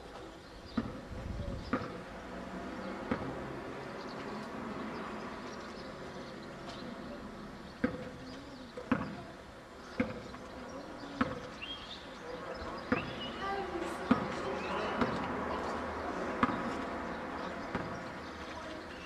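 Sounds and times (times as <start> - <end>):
background noise: 0.0 - 19.0
basketball bouncing on hard court: 1.7 - 2.0, 8.9 - 9.2, 11.2 - 11.4, 12.9 - 13.2, 14.1 - 14.4, 15.0 - 15.2, 16.4 - 16.8, 17.7 - 18.0.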